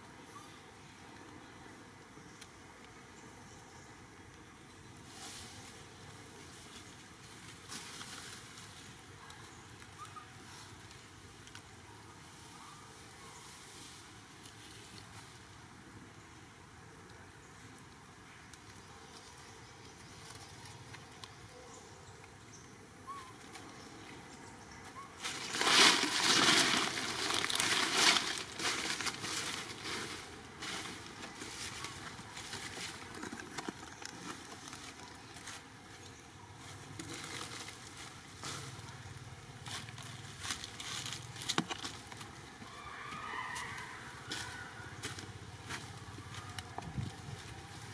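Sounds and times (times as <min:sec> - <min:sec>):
dry leaves rustling and crackling: 0:05.0 - 0:10.1, 0:25.2 - 0:47.9.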